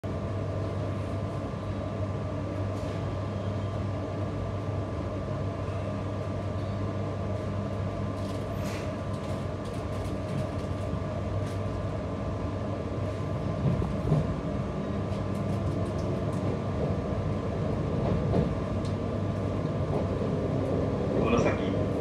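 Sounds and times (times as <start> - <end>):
electric train equipment humming: 0.1 - 22.0.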